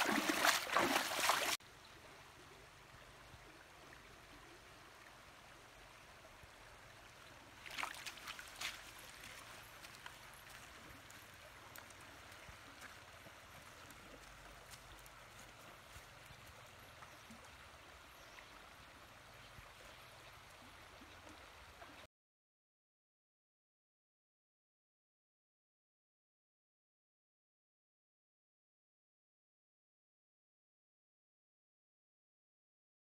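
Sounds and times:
feet wading through water: 0.0 - 1.6, 7.6 - 16.7.

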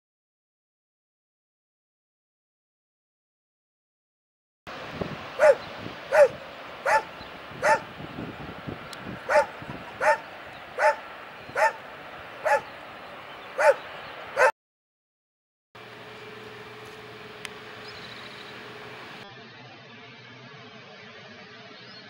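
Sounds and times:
animal barking: 5.4 - 7.9, 9.3 - 11.8, 12.4 - 12.7, 13.6 - 13.8.

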